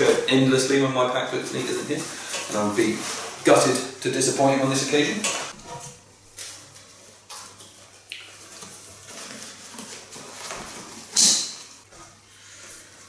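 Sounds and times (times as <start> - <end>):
fabric rustling: 5.4 - 13.0.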